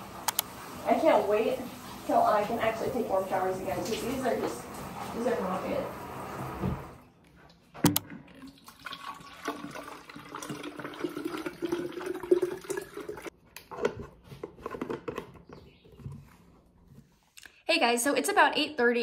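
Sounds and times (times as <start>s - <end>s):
water pouring into bottle: 8.3s - 13.3s.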